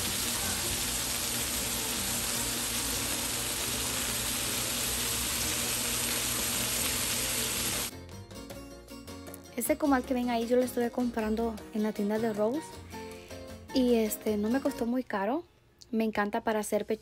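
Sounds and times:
steaks sizzling on griddle: 0.0 - 7.9.

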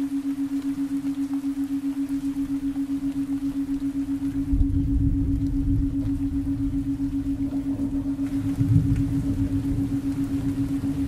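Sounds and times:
pulsing low tone: 0.0 - 11.0
rain: 0.0 - 11.0
low uneven rumble: 4.0 - 11.0.

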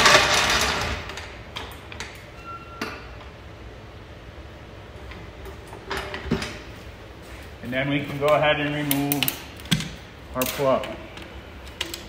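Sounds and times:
floor jack rolling on concrete: 0.0 - 1.3.

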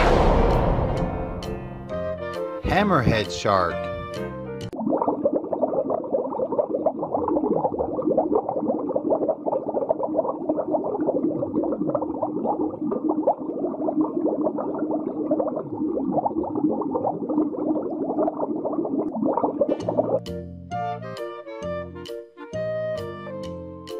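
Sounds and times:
underwater bubbling and gurgling: 4.7 - 20.2.

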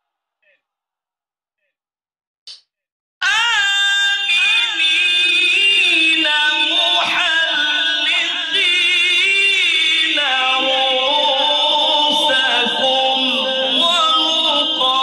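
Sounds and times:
man chanting a slow melody: 3.6 - 15.0.

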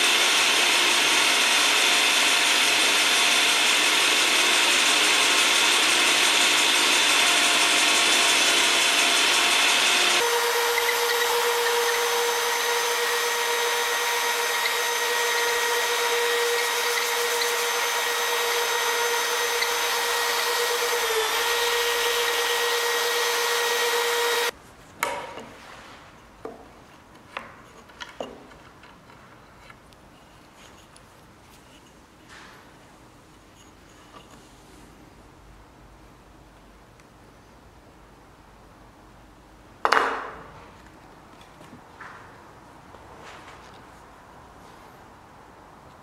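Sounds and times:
drill whining: 0.0 - 24.5
table saw cutting wood: 0.0 - 24.5.

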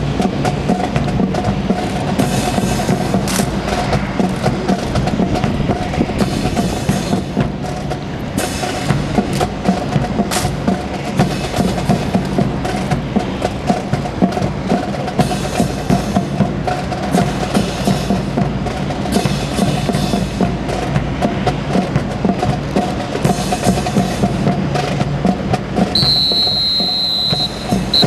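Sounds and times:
sharp hollow marching knocks: 0.0 - 28.0
long high whistle: 26.0 - 28.0.

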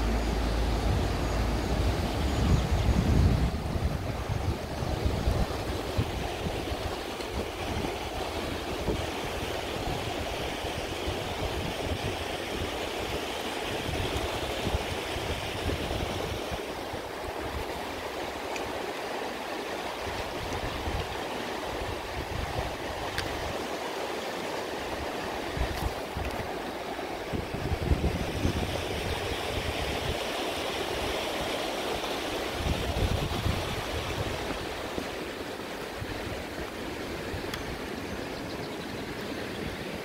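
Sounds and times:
wind rumble on microphone: 0.0 - 18.1, 20.1 - 23.6, 24.9 - 26.6, 27.2 - 40.0
river flowing over stones: 0.0 - 40.0.

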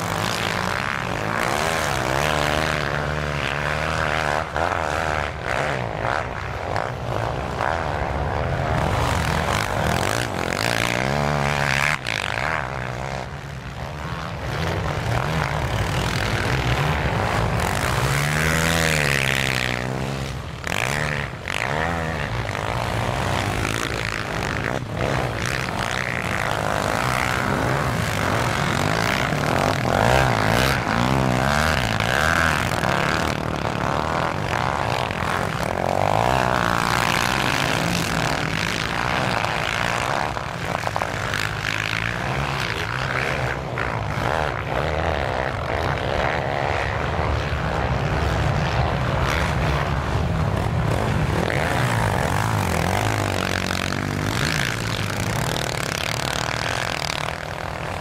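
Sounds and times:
quad bike engines revving: 0.0 - 58.0.

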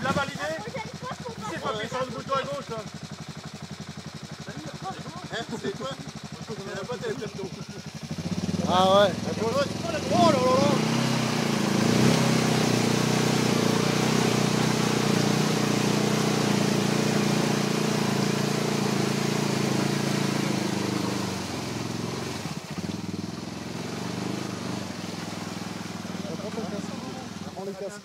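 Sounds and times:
quad engine revving: 0.0 - 28.0
wheels churning in mud: 0.0 - 28.0.

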